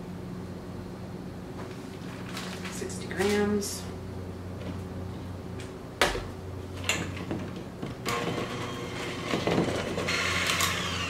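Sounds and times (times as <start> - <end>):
electric hand mixer running: 8.0 - 11.0.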